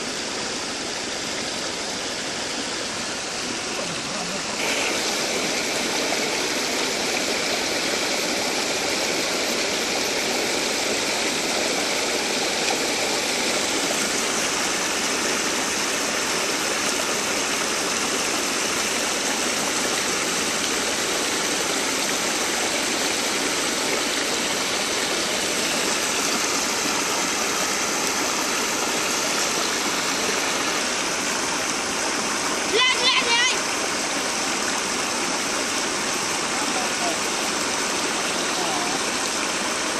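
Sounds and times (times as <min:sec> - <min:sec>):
river water rushing over fence: 0:00.0 - 0:39.9.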